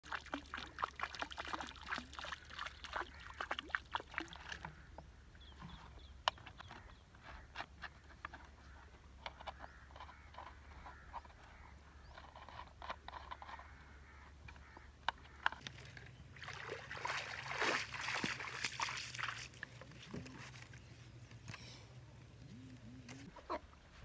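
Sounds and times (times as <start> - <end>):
water splashing around legs: 0.0 - 4.6, 15.7 - 20.7
water dripping: 0.0 - 4.7, 15.6 - 20.0.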